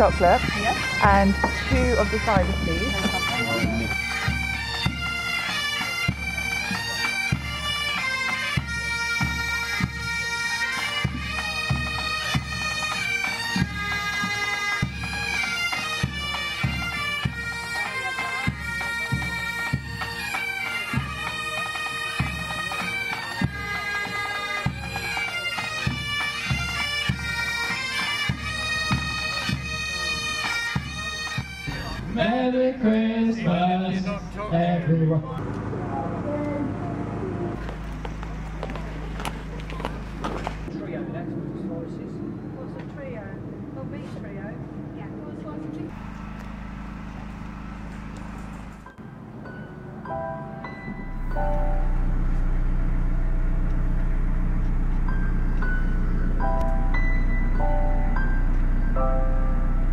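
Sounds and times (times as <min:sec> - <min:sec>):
low drum beat: 0:00.0 - 0:05.4
bagpipes playing: 0:00.0 - 0:34.9, 0:51.1 - 0:59.9.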